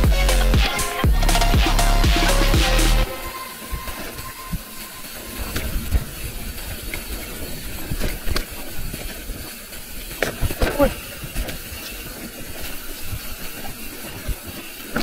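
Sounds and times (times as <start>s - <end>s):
steady rushing noise: 0.0s - 15.0s
bike knocks and rattles: 7.3s - 15.0s.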